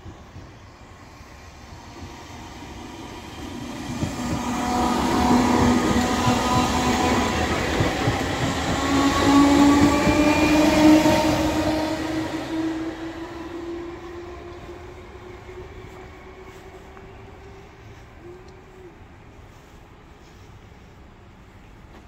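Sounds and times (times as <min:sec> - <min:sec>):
train wheels clattering on rails: 0:01.9 - 0:13.6.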